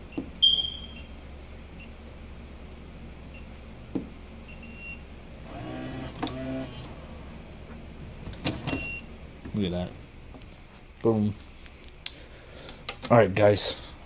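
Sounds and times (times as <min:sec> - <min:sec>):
small motor drawing bolt: 0:05.5 - 0:07.1, 0:08.4 - 0:08.9.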